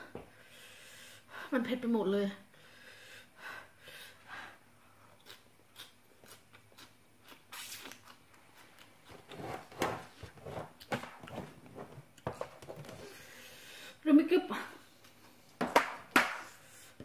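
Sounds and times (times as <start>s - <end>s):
person crunching food: 5.2s - 9.1s.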